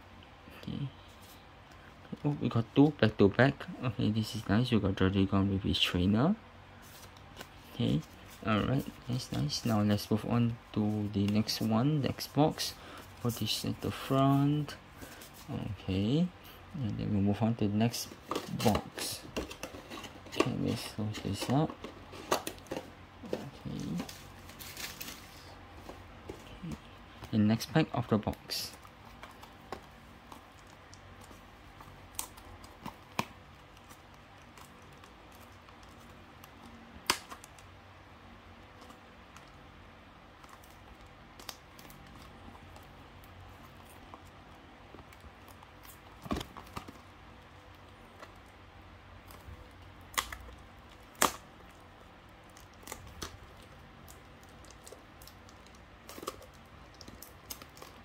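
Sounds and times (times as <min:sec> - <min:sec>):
hands handling cardboard box and cards: 0:06.8 - 0:15.8, 0:17.8 - 0:37.6, 0:40.4 - 0:48.5.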